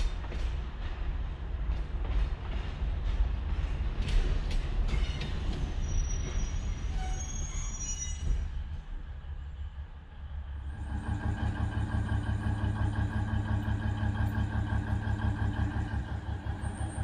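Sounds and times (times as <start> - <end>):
train rumble: 0.0 - 17.0
high wheel squeal: 5.0 - 8.4.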